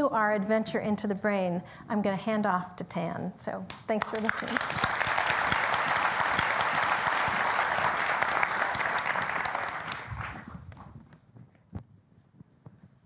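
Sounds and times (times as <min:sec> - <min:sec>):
large audience applauding: 0:04.0 - 0:10.8.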